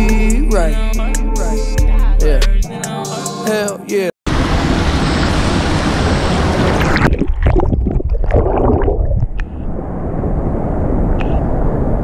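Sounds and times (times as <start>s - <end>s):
underwater gurgling and bubbling: 6.5s - 9.5s.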